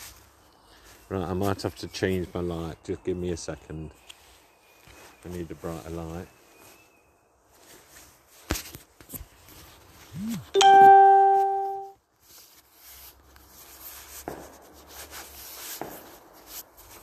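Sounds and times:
bell-like chime ding: 10.6 - 12.0.

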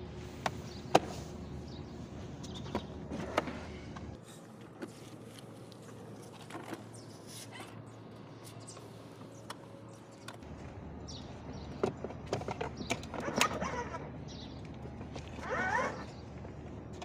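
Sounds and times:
faint birds chirping: 0.4 - 17.0.

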